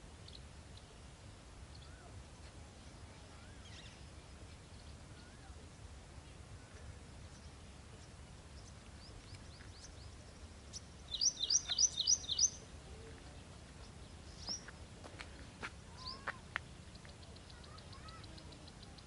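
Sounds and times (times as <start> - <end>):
faint outdoor background: 0.0 - 19.0
soft bird chirps: 6.2 - 19.0.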